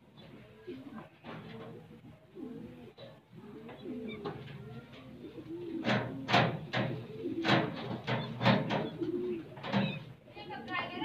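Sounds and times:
pigeons cooing: 0.0s - 11.0s.

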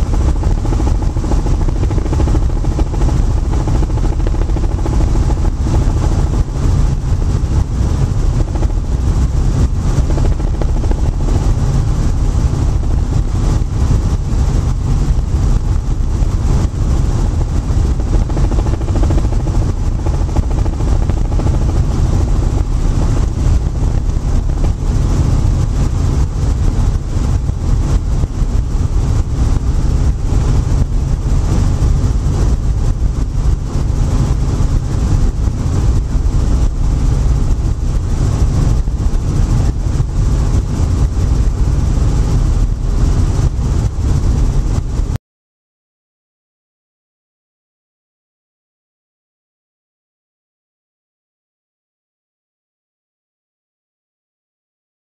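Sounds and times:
helicopter engine and rotor noise: 0.0s - 45.2s.

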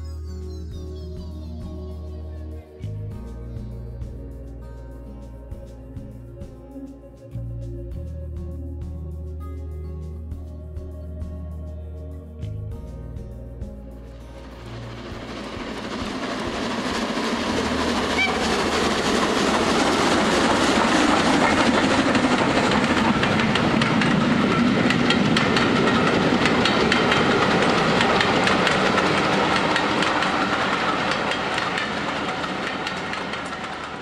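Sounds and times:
train passing with rail clicks: 14.4s - 34.0s.

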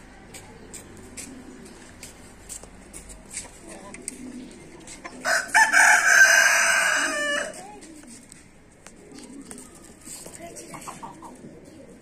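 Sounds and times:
rooster crowing: 5.2s - 7.5s.

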